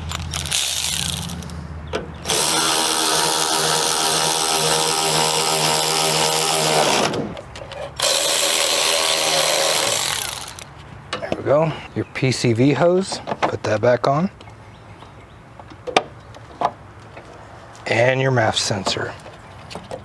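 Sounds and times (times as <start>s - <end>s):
electric ratchet motor whine: 0.3s - 1.5s, 2.2s - 7.3s, 8.0s - 10.7s.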